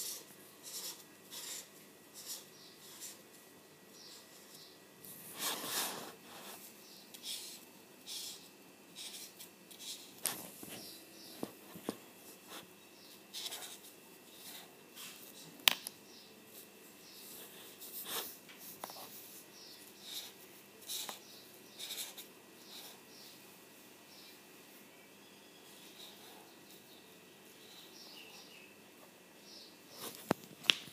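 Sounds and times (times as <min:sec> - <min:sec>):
marker scratching on paper: 0:00.0 - 0:03.2, 0:04.1 - 0:11.0, 0:13.3 - 0:15.4, 0:17.2 - 0:23.0.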